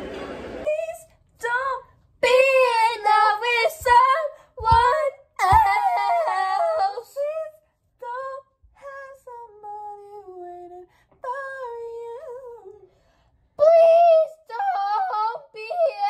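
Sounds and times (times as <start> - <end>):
girls singing: 0.7 - 8.4, 13.6 - 16.0.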